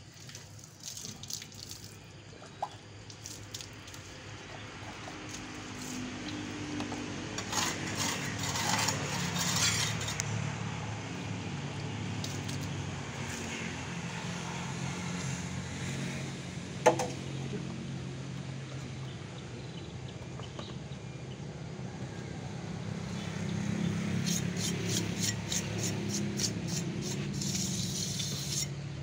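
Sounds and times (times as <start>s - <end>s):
hand tool scraping concrete: 6.8s - 10.3s, 24.2s - 28.8s.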